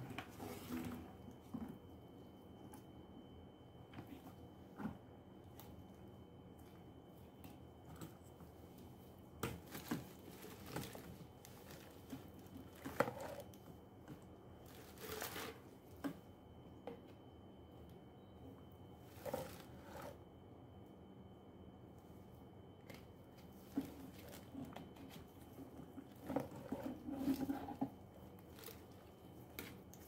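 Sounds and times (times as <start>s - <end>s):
vacuum hose rustling and scraping: 25.4s - 29.3s.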